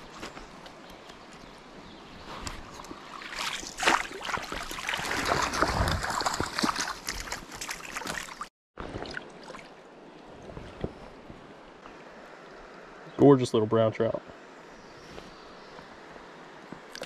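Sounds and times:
fish splashing in water: 0:03.1 - 0:09.7.

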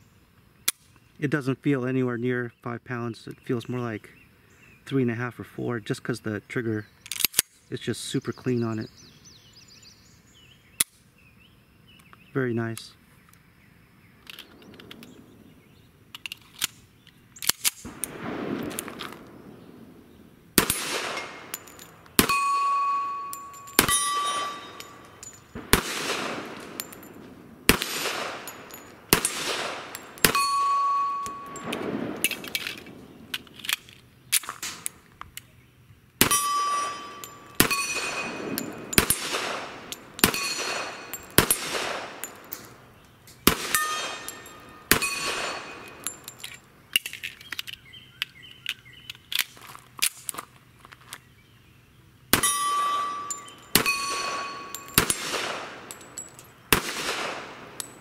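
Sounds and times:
pistol gunshots: 0:17.8 - 0:33.5, 0:36.2 - 0:42.8, 0:43.4 - 0:46.3, 0:52.3 - 0:58.0
metallic ding of steel targets: 0:20.7 - 0:25.7, 0:28.3 - 0:32.5, 0:36.2 - 0:42.7, 0:43.7 - 0:46.5, 0:52.4 - 0:56.5.

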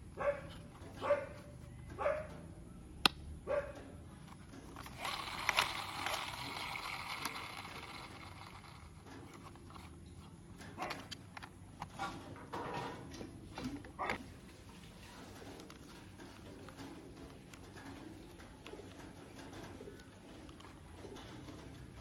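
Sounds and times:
plastic rubbing and scraping: 0:04.2 - 0:22.0.

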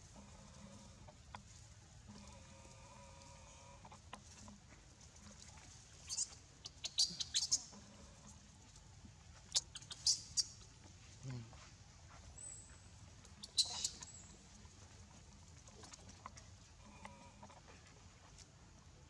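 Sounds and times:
drawn-out layered animal call: 0:06.1 - 0:07.7, 0:09.5 - 0:10.5, 0:13.4 - 0:14.2.

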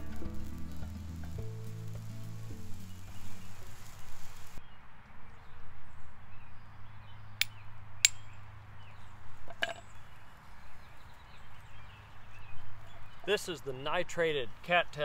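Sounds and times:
steel striking flint clicks: 0:07.4 - 0:08.2.

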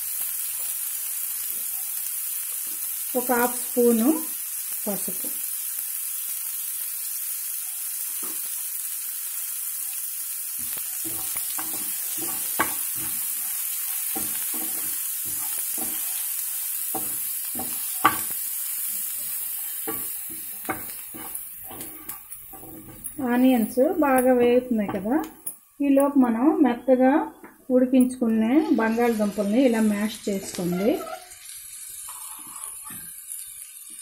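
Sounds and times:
food sizzling in oil: 0:00.0 - 0:34.0
spatula knocking on pan: 0:10.6 - 0:13.4, 0:14.1 - 0:16.1, 0:17.0 - 0:18.3, 0:19.8 - 0:23.1
spatula scraping and stirring: 0:10.6 - 0:25.4, 0:30.3 - 0:31.5.

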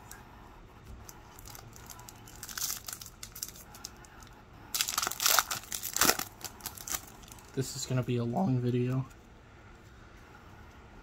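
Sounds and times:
foil wrapper crinkling: 0:01.2 - 0:07.7
foil wrapper tearing: 0:01.3 - 0:04.0, 0:04.7 - 0:07.5.

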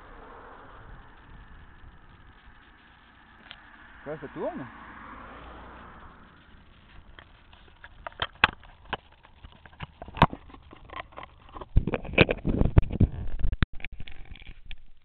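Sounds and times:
camera handling clicks and knocks: 0:07.2 - 0:12.4.

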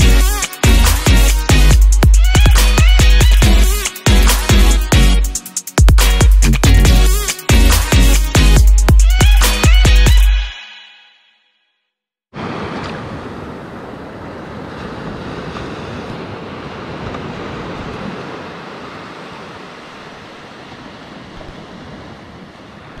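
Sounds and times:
small waves washing in: 0:12.3 - 0:23.0.

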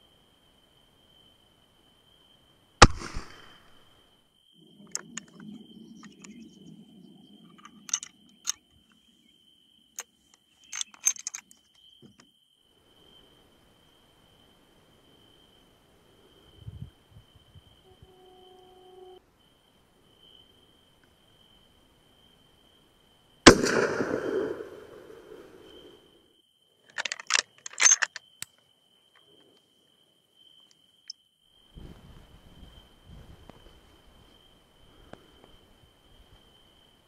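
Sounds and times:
rifle shot: 0:02.8 - 0:03.8, 0:23.5 - 0:25.5
clicks and knocks of rifle handling: 0:04.8 - 0:06.5, 0:07.5 - 0:09.0, 0:10.0 - 0:12.3, 0:26.9 - 0:29.6
faint high tone: 0:17.9 - 0:19.2.

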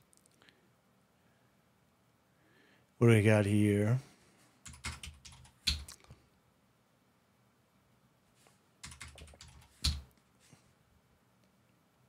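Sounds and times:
typing on a keyboard: 0:04.6 - 0:06.0, 0:08.8 - 0:10.1.

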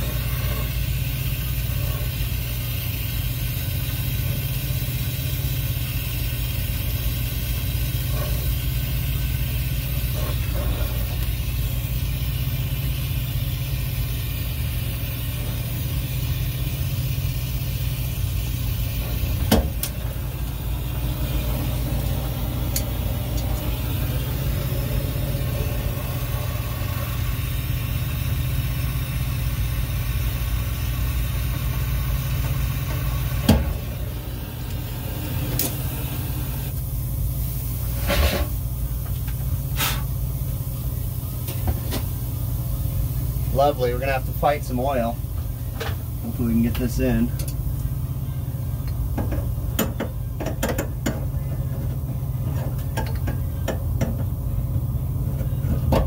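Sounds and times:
torch flame roaring: 0:00.0 - 0:40.2.

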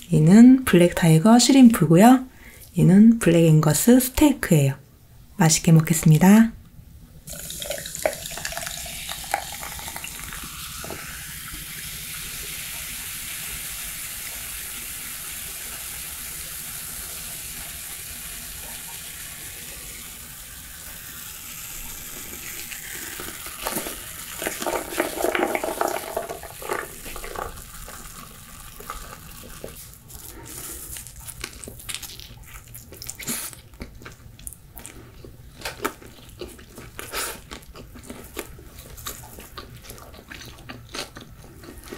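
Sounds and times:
crunchy chewing: 0:26.6 - 0:41.9.

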